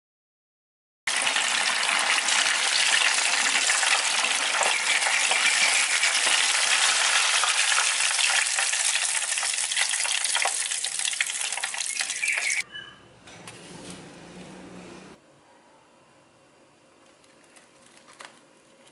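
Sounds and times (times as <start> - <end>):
chicken sizzling in hot oil: 1.1 - 12.6.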